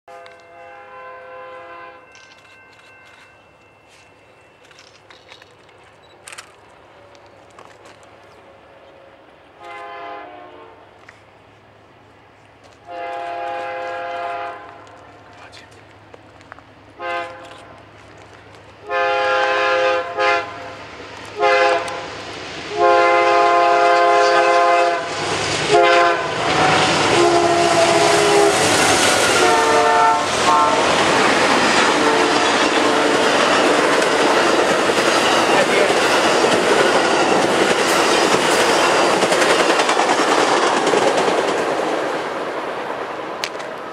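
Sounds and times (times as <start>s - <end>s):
train air horn blasts: 0.1s - 4.0s, 9.5s - 11.0s, 12.8s - 15.0s, 17.0s - 17.8s, 18.8s - 33.4s
train wheels rushing on rail: 2.0s - 43.9s
clickety-clack of passing coaches: 12.4s - 43.9s.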